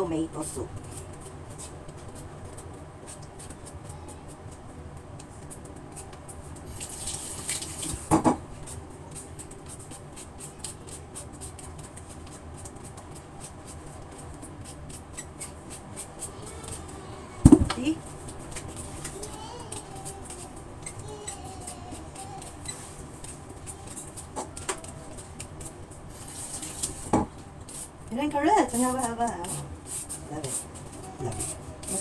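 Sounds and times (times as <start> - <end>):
peeler scraping potato skin: 8.6 - 17.0, 18.3 - 32.0.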